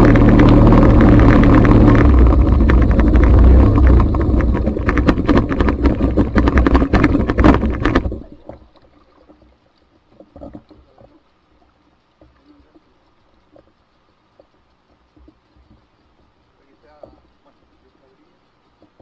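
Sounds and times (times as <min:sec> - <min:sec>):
loud rushing noise: 0:00.0 - 0:08.1
water lapping against hull: 0:00.0 - 0:19.0.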